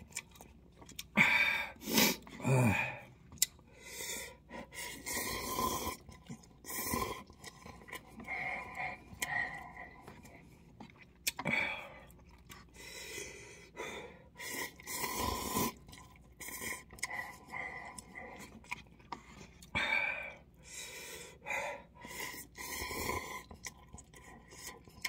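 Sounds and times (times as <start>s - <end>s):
chewing: 0.0s - 1.2s, 3.2s - 3.6s, 4.8s - 13.2s, 14.4s - 20.3s, 22.0s - 25.0s
slurping noodles: 1.8s - 2.8s, 3.9s - 10.7s, 14.3s - 19.7s, 22.0s - 25.0s.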